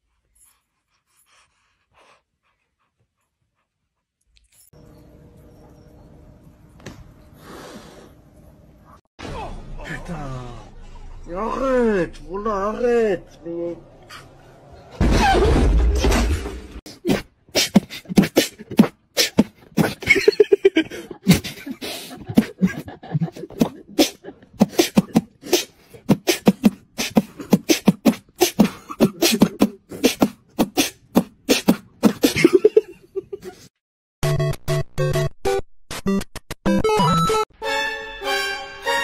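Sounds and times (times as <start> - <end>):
person beatboxing: 16.9 - 20.0, 23.3 - 32.4.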